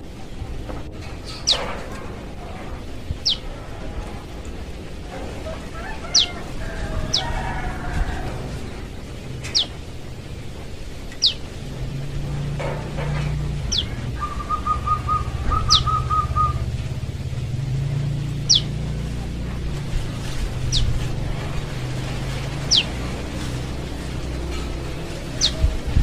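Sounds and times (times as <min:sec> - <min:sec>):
steady low hum: 0:00.0 - 0:26.0
young bird calling: 0:06.0 - 0:07.4, 0:13.6 - 0:16.7, 0:18.4 - 0:18.8, 0:22.6 - 0:23.0.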